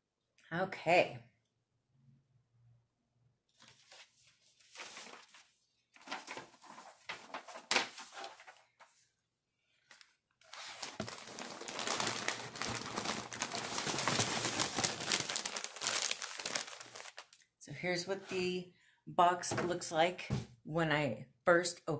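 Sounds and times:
paper and packaging crinkling: 3.6 - 8.9, 9.9 - 17.4.

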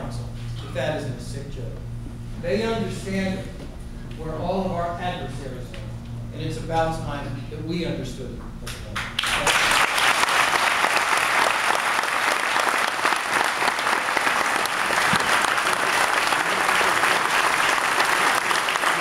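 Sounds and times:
audience applauding: 9.0 - 19.0.

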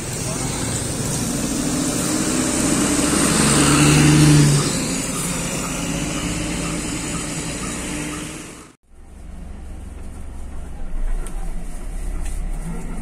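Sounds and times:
bus engine accelerating: 0.0 - 13.0
road noise: 0.0 - 13.0.

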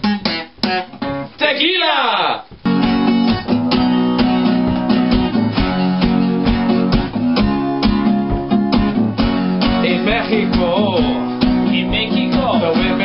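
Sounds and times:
guitar strumming: 0.0 - 13.0.

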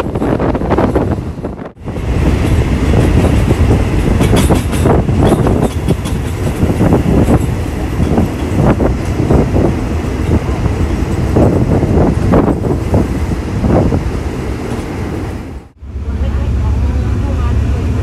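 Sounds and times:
train rumbling on track: 0.0 - 18.0
wheels clacking over track: 2.2 - 13.1.

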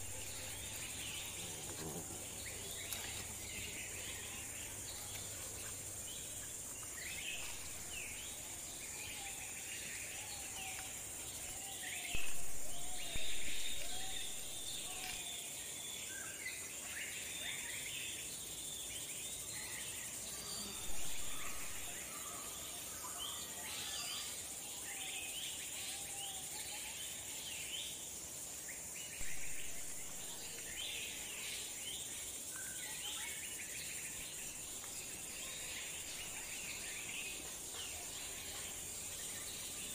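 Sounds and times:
birds chirping: 0.0 - 15.5, 29.2 - 39.9
high insect drone: 0.0 - 39.9.

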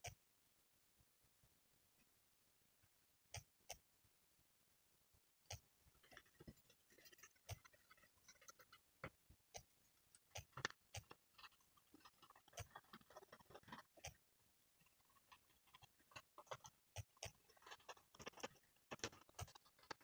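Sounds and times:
paintbrush tapping and scraping: 5.5 - 20.0.

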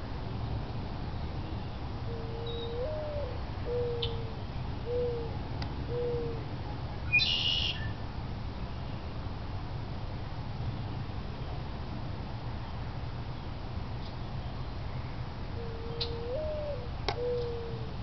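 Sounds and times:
bird calling: 2.1 - 5.3, 5.9 - 6.4, 7.1 - 8.0, 15.6 - 17.9.

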